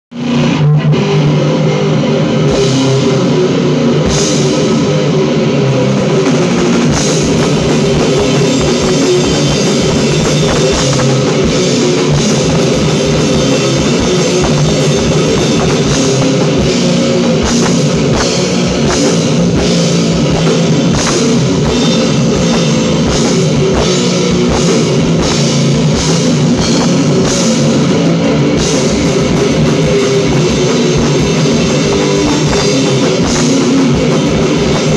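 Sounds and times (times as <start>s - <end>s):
electric guitar playing heavy rock: 0.1s - 34.9s
drum and cymbal hits: 0.2s - 34.9s.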